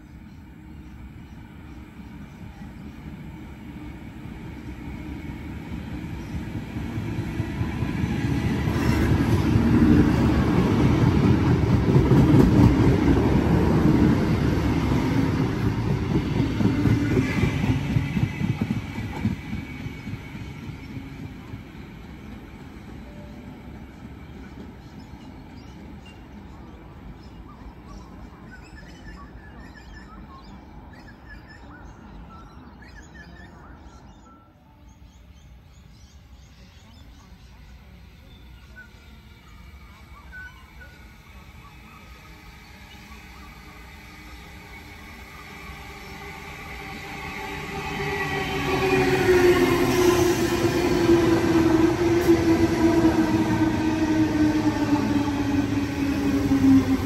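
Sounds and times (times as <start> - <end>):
electric train rumbling past: 0.0 - 57.0
faint bird chirps: 23.0 - 46.3.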